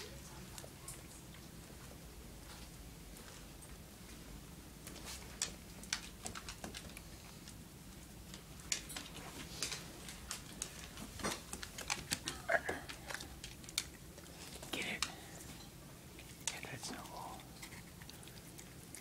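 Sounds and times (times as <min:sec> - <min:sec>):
dog claws clicking on wooden floor: 0:05.3 - 0:07.6, 0:08.3 - 0:15.2.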